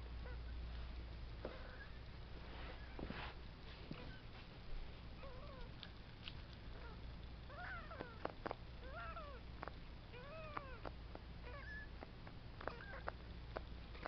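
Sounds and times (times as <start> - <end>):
kitten mewing: 10.1 - 12.0, 12.6 - 13.2.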